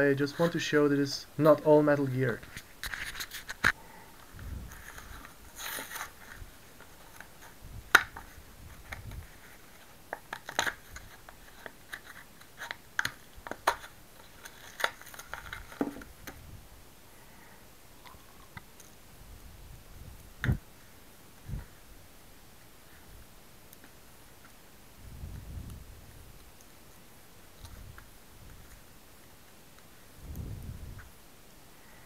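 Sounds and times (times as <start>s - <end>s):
plastic packaging being torn open: 10.2s - 15.8s.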